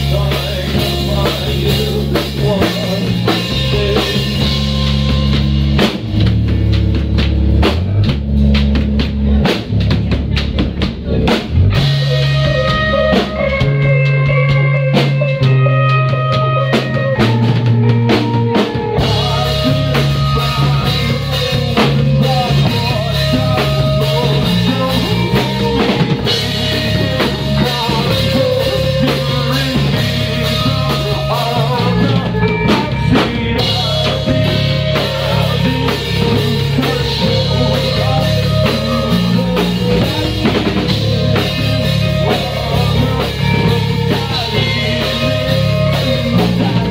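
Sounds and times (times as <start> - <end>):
drum kit beat: 0.0 - 46.9
electric guitar: 0.0 - 46.9.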